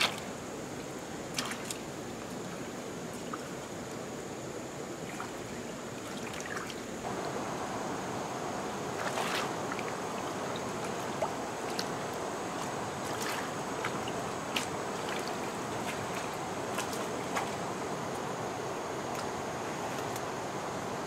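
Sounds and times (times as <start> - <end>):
steady high-pitched hiss: 0.0 - 21.0
water rushing: 0.0 - 21.0
hands splashing in muddy water: 12.6 - 17.6.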